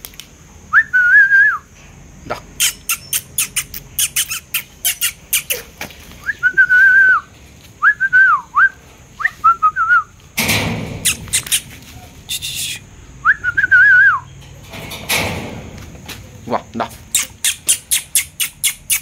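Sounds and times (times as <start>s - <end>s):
person whistling: 0.7s - 1.6s, 6.2s - 10.1s, 12.3s - 14.3s.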